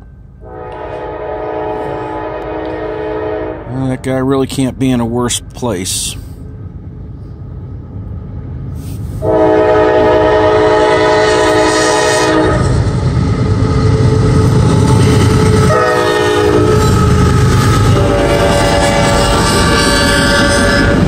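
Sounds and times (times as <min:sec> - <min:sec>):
diesel locomotives rumbling past: 0:00.0 - 0:21.0
multi-tone air horn blasts: 0:00.4 - 0:03.7, 0:09.2 - 0:12.8, 0:15.7 - 0:17.2, 0:17.8 - 0:21.0.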